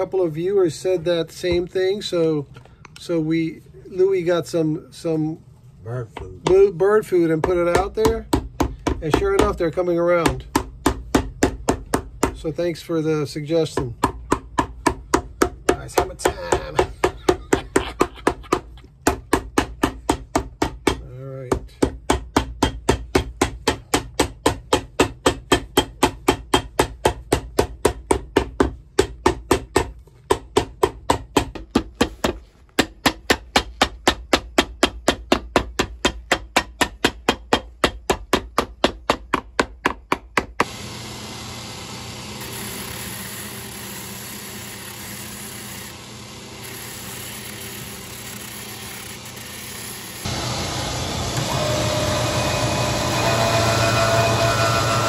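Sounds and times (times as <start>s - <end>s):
hammer pounding leather sole: 7.3s - 12.5s, 13.7s - 40.7s
shoe sanding machine running: 40.6s - 55.0s.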